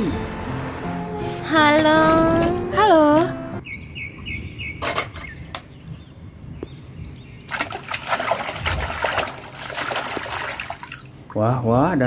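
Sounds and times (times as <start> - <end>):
water sloshing in a plastic tub: 7.5 - 11.4.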